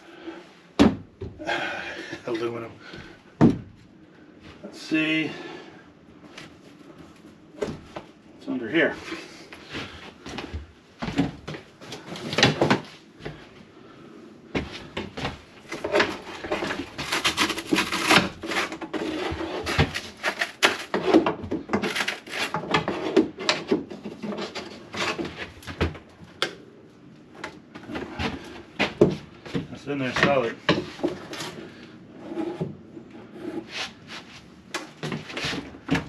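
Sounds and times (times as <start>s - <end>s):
tools prying and scraping panel: 15.7s - 25.5s.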